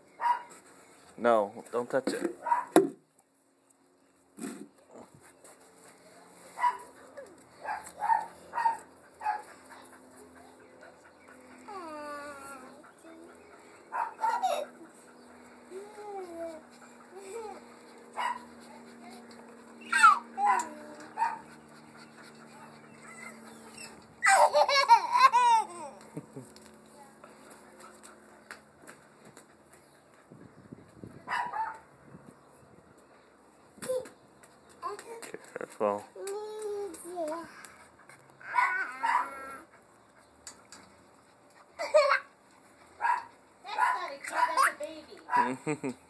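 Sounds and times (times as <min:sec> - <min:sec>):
dog barking: 0:00.2 - 0:00.5, 0:02.4 - 0:02.8, 0:06.6 - 0:06.9, 0:07.6 - 0:09.4, 0:13.9 - 0:14.5, 0:18.2 - 0:18.5, 0:19.9 - 0:21.4, 0:31.3 - 0:31.8, 0:38.5 - 0:39.4, 0:43.0 - 0:44.5, 0:45.3 - 0:45.6
toddler girl giggling: 0:14.2 - 0:14.8, 0:15.7 - 0:17.6, 0:24.2 - 0:26.6, 0:41.8 - 0:42.3, 0:45.3 - 0:46.0.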